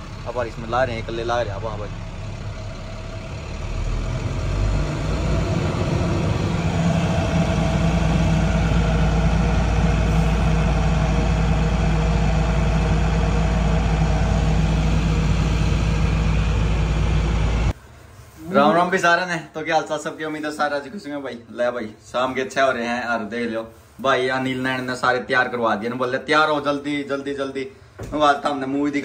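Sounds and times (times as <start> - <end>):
diesel truck engine running: 0.0 - 17.8.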